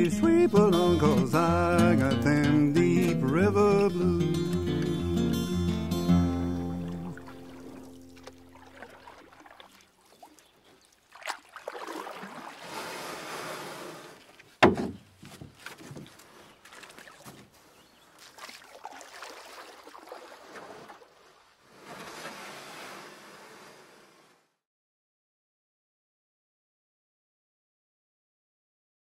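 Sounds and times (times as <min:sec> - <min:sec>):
water splashing around kayak: 0:06.5 - 0:24.5
sharp knock: 0:14.6 - 0:15.0.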